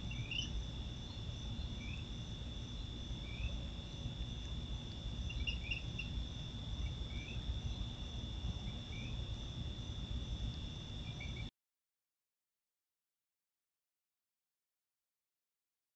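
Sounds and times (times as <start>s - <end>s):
crickets trilling: 0.0s - 11.5s
low background rumble: 0.0s - 11.5s.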